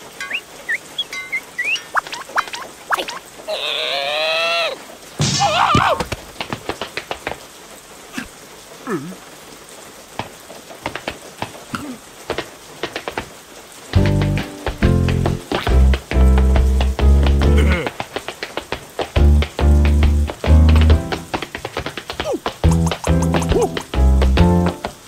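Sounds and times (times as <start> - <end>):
raindrops dripping: 0.0 - 25.0
short warbling call: 0.2 - 3.2
cartoon creature vocal call: 0.7 - 4.8.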